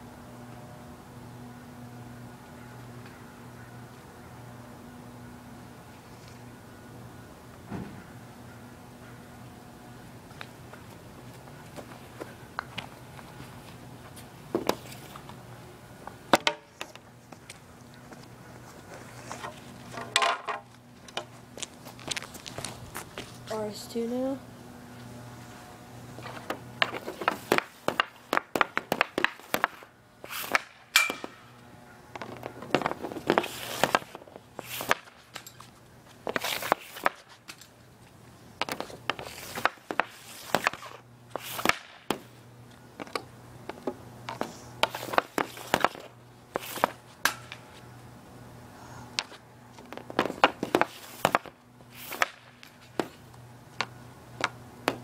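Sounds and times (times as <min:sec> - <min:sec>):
hockey stick clacking on shooting pad: 0:26.4 - 0:31.5, 0:38.6 - 0:42.3, 0:44.8 - 0:47.6, 0:50.0 - 0:53.2.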